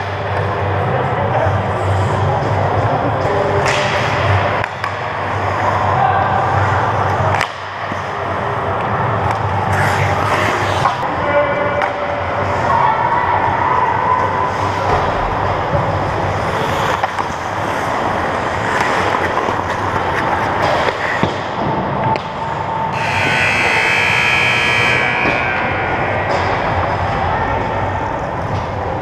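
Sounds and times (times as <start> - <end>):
skates on ice: 9.2 - 11.0, 14.4 - 22.6
hissing skate scrape: 9.7 - 11.0.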